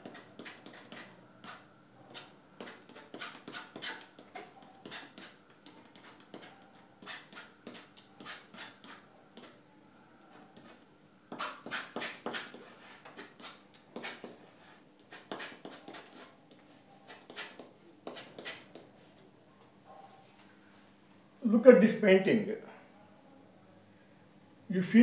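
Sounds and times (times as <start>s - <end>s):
palette knife scraping on canvas: 0.0s - 9.6s, 10.4s - 16.4s, 17.0s - 18.8s.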